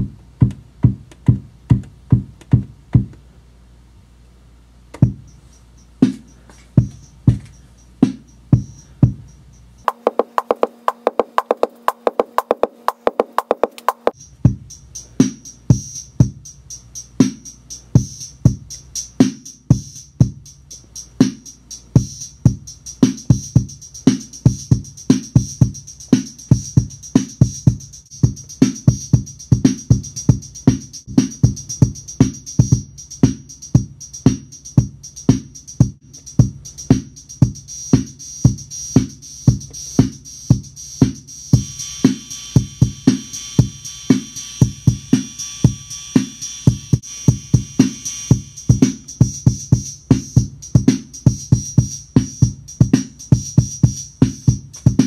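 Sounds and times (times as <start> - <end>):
bass drum thumps: 0.0 - 3.2, 4.9 - 5.3, 6.8 - 9.2, 9.9 - 14.7, 46.7 - 55.0
drum machine beat: 0.0 - 3.2, 5.0 - 55.0
hi-hat ticks: 4.9 - 55.0.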